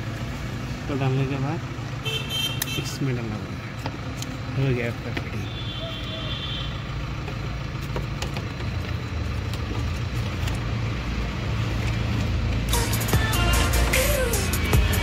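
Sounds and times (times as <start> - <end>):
electronic music: 12.7 - 15.0.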